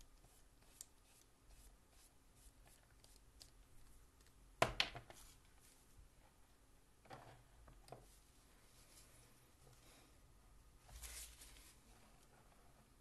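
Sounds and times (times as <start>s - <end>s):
brush strokes on paper: 0.3s - 2.8s, 10.8s - 12.2s.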